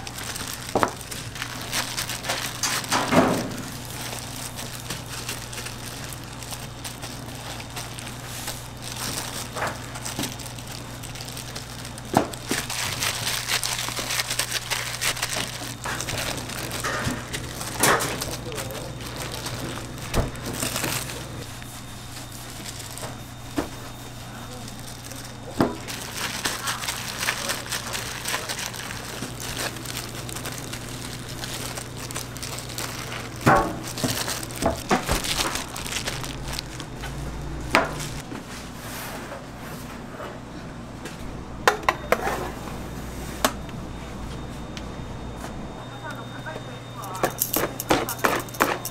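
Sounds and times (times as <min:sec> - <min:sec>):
plastic gloves crinkling: 0:00.0 - 0:38.2
low hum: 0:03.4 - 0:38.3.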